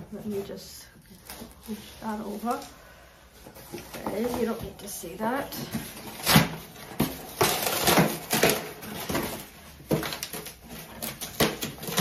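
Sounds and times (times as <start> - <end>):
packing paper crinkling and tearing: 5.8 - 12.0.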